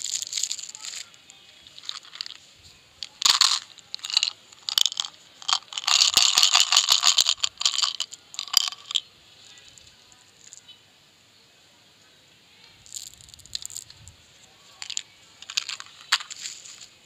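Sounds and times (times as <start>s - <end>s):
candies rattling and clattering: 0.0s - 2.4s, 3.0s - 9.0s, 12.9s - 14.0s, 14.8s - 16.8s.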